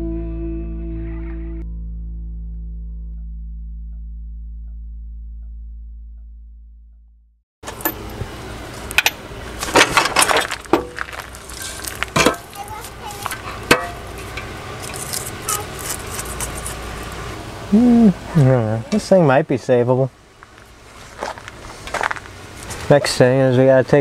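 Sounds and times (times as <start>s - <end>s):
metal clanks and knocks: 7.6s - 8.2s, 8.9s - 16.5s
metal scraping: 7.6s - 17.4s.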